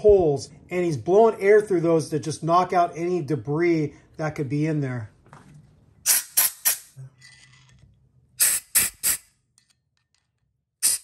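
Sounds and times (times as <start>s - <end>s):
compressed air blasts: 6.0s - 7.0s, 8.4s - 9.3s, 10.8s - 11.0s.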